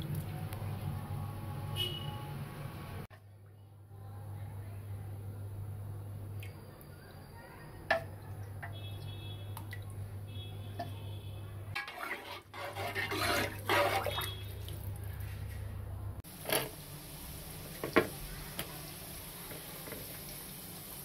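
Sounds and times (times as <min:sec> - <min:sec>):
water splashing in a pot: 0:07.8 - 0:11.0, 0:11.7 - 0:15.2, 0:16.2 - 0:21.0.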